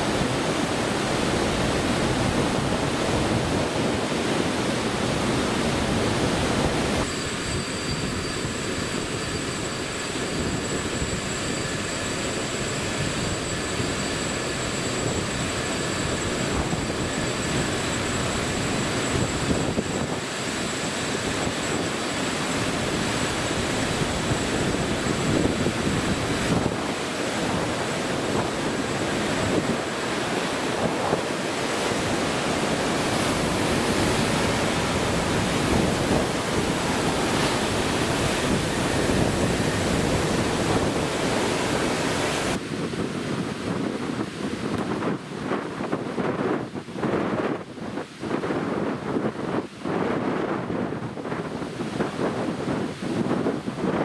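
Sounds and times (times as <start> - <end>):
steady rushing noise: 0.0 - 54.0
faint high-pitched whines: 5.8 - 42.5.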